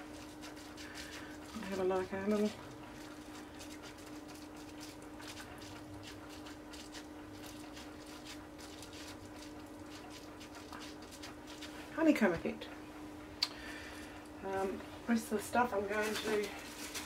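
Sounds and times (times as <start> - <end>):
bubble wrap crinkling: 0.0 - 12.0, 15.4 - 17.0
steady hum: 0.0 - 17.0.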